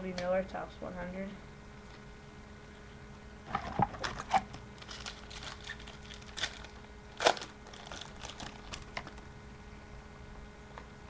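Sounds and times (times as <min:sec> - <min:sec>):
foil wrapper crinkling: 0:03.5 - 0:09.2.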